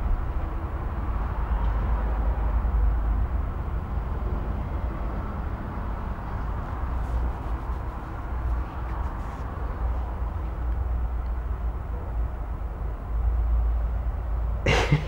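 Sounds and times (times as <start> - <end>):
room noise rumble and hiss: 4.2 - 13.8.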